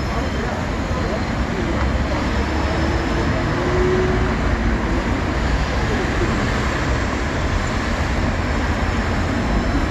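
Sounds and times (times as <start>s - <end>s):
road traffic rumble: 0.0s - 9.9s.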